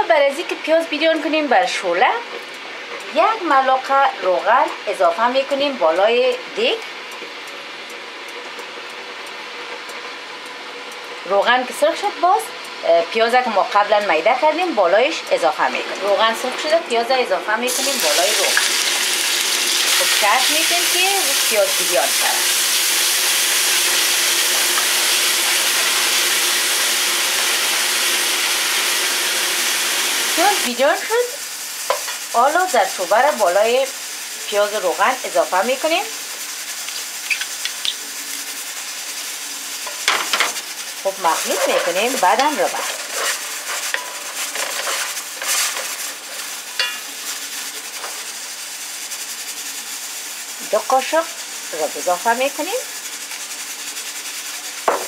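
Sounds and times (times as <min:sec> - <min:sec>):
onions sizzling in hot oil: 0:00.0 - 0:55.0
short squeak: 0:37.2 - 0:38.0.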